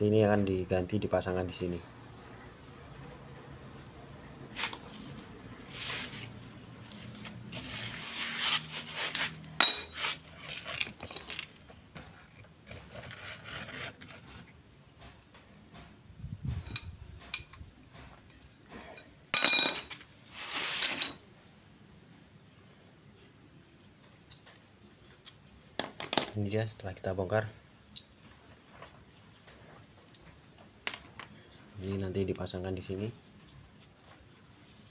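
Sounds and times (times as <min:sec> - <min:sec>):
metal tools clinking and scraping: 0:09.1 - 0:11.6, 0:16.5 - 0:17.5, 0:18.7 - 0:21.2.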